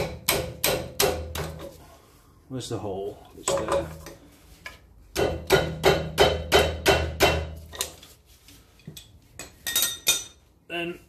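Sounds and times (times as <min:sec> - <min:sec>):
hammer tapping on metal: 0:00.0 - 0:01.7, 0:05.1 - 0:07.6.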